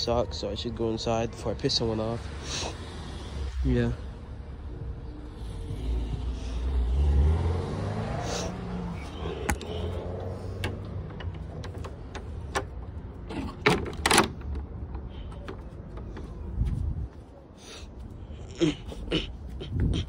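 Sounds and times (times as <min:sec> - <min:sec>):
vehicle engine accelerating: 0:05.3 - 0:11.6
sharp clicks and knocks: 0:10.6 - 0:16.4.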